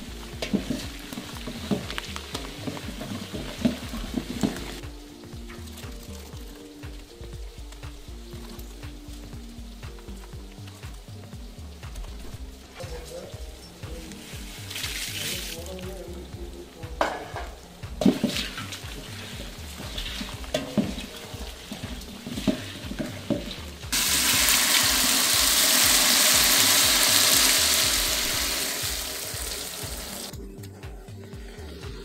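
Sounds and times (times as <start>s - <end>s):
quiet background music: 0.0s - 32.0s
ingredients knocking and rustling: 0.3s - 7.1s, 16.9s - 28.1s
liquid pouring into pot: 18.0s - 30.3s.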